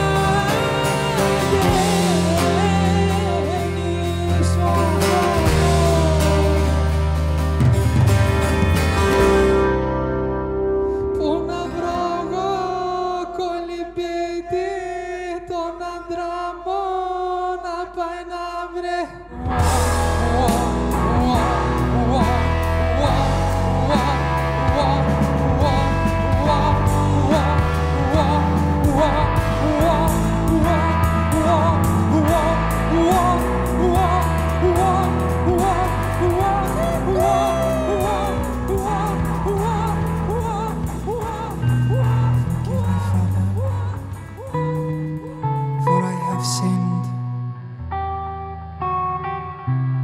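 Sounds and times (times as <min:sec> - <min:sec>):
drums: 0:00.0 - 0:12.5, 0:19.3 - 0:46.8
double bass: 0:00.0 - 0:13.0, 0:19.3 - 0:50.0
electric guitar: 0:00.0 - 0:13.7, 0:19.3 - 0:50.0
man singing high countertenor: 0:45.7 - 0:47.3.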